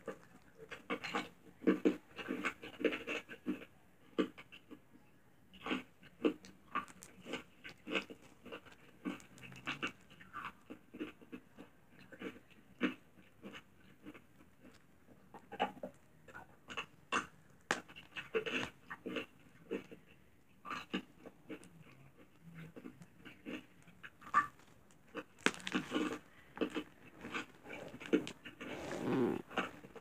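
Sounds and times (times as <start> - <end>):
slime squishing and popping: 6.3 - 10.1, 24.1 - 28.6.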